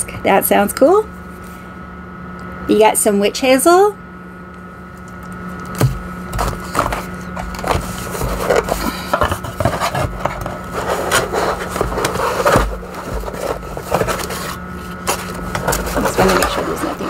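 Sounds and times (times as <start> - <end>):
hands rummaging through box: 5.7 - 17.0.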